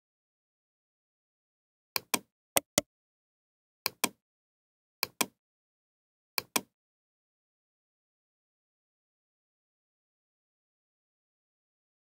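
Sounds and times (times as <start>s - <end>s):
computer mouse clicking: 2.0s - 2.8s, 5.0s - 5.4s, 6.4s - 6.7s.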